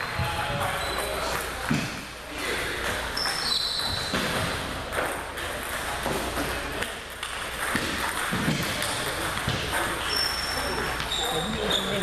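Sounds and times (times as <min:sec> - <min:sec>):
ball strikes from nearby tables: 0:00.2 - 0:02.1, 0:02.8 - 0:10.1
ping pong ball clicking: 0:06.8 - 0:09.9.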